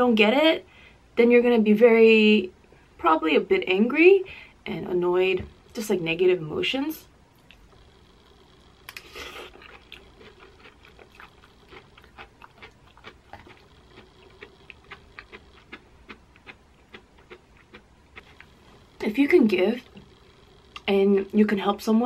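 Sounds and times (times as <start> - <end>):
biting into food: 8.9 - 18.5
close chewing: 8.9 - 18.8.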